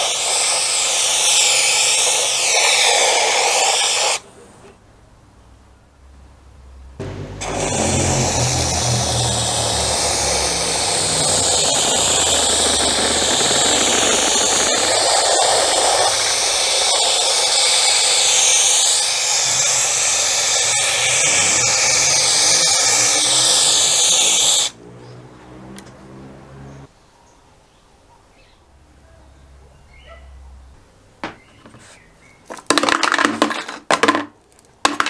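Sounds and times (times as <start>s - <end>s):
powder coating gun hissing: 0.0s - 4.3s, 7.0s - 24.8s.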